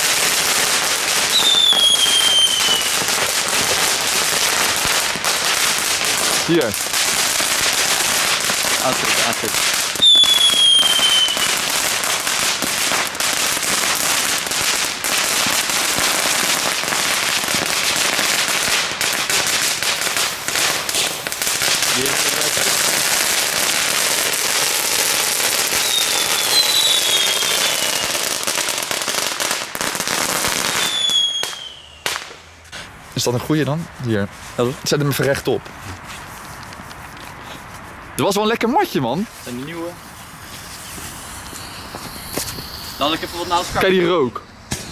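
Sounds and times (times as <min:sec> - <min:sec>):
firework fountain crackling: 0:00.0 - 0:44.9
short falling whistles: 0:01.3 - 0:02.9, 0:10.0 - 0:11.5, 0:25.8 - 0:28.0, 0:30.8 - 0:32.0.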